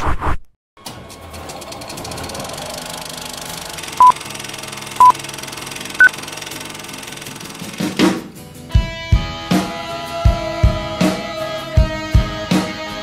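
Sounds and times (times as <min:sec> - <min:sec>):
film projector clatter: 0:01.0 - 0:08.4.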